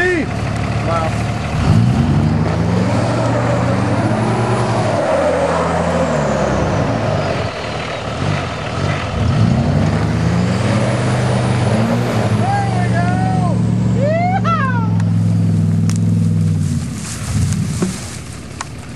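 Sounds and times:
tyres churning mud: 0:00.0 - 0:14.1
diesel engine revving: 0:00.0 - 0:18.9.

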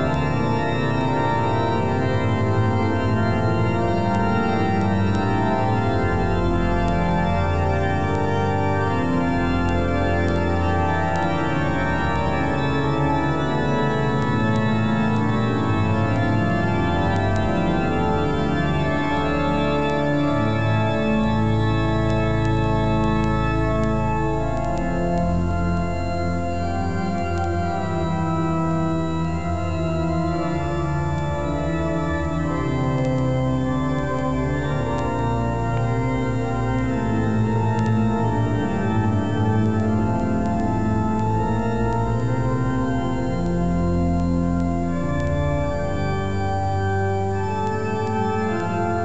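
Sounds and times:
organ chords: 0:00.0 - 0:49.0.

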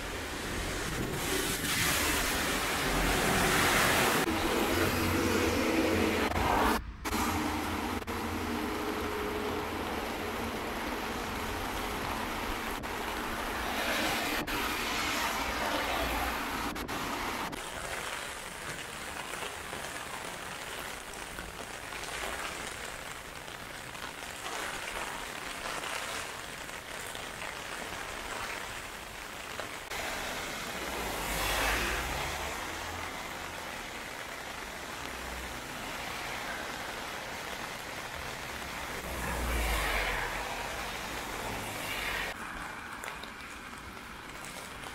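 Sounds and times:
cars hissing past on wet road: 0:00.0 - 0:18.4, 0:29.8 - 0:43.4
heavy rain on pavement: 0:00.0 - 0:44.9.

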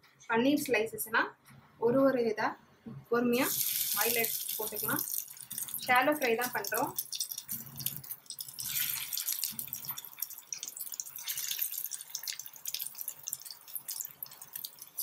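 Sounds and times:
oil sizzling in a pan: 0:03.4 - 0:15.0.

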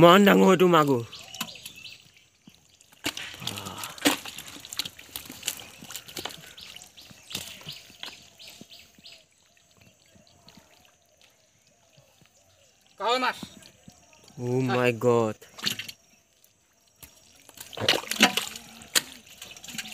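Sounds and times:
hands splashing in mud and water: 0:02.8 - 0:08.9, 0:17.0 - 0:19.9.

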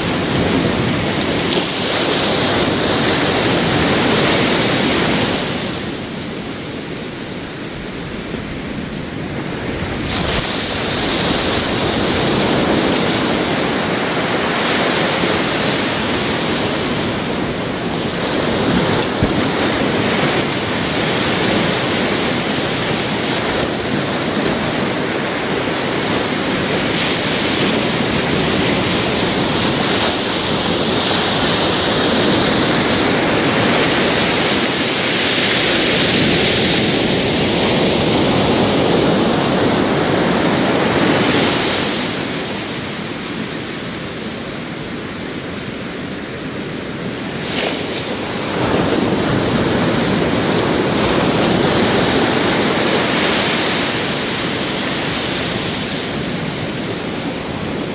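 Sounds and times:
ocean waves breaking on shore: 0:00.0 - 0:57.9.

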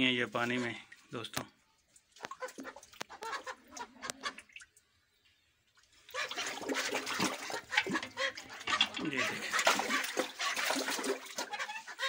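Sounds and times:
ducks splashing in water: 0:01.9 - 0:04.9, 0:05.6 - 0:12.0
ducks quacking: 0:02.2 - 0:04.5, 0:06.0 - 0:12.0.

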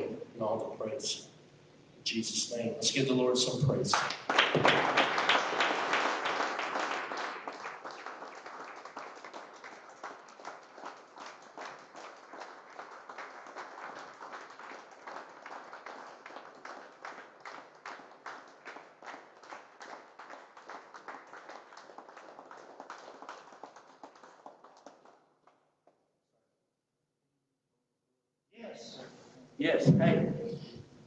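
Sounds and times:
crowd clapping: 0:03.8 - 0:26.0.

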